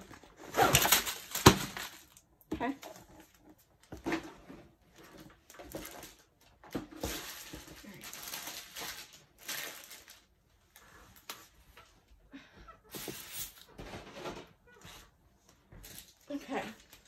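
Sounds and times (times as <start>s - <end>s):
plastic wrapping crinkling: 0.1s - 2.4s, 5.5s - 11.4s.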